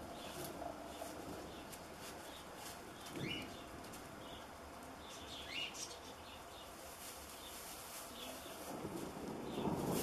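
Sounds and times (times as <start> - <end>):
steady background hiss: 0.0 - 10.0
small bird chirping: 3.0 - 6.7.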